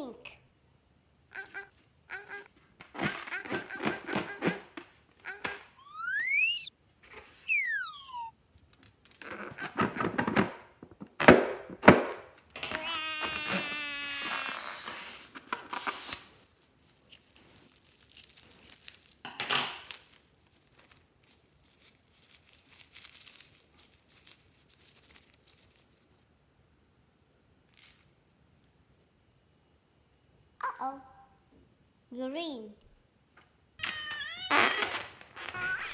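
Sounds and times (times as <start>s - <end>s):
falling whistle sound effect: 5.8s - 6.7s, 7.4s - 8.3s
squealing whine: 5.8s - 6.7s, 7.4s - 8.3s
hiss: 14.0s - 16.3s
faint rustles and crackles: 19.9s - 26.4s.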